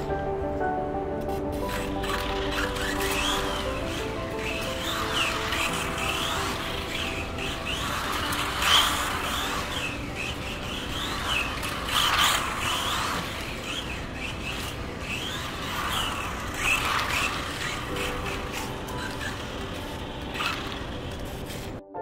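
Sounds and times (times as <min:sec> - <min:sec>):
electric motor whining: 0:01.5 - 0:21.8.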